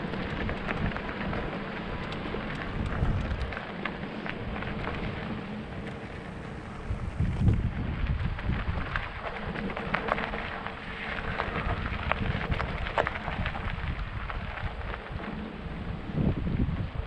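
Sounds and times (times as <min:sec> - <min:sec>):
sharp clicks and rattles: 0:00.0 - 0:06.0
bike tyre noise on trail: 0:00.0 - 0:17.0
wind buffeting microphone: 0:00.0 - 0:17.0.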